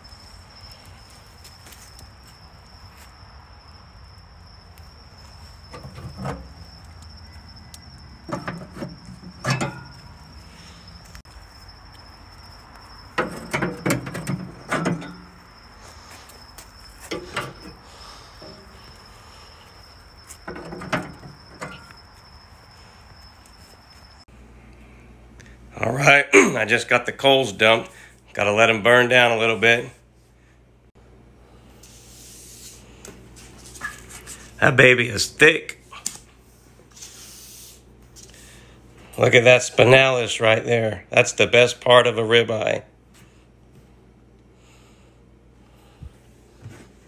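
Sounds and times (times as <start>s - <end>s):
crickets chirring: 0.0s - 47.0s
metal grill clanking: 8.3s - 10.1s, 13.2s - 15.4s.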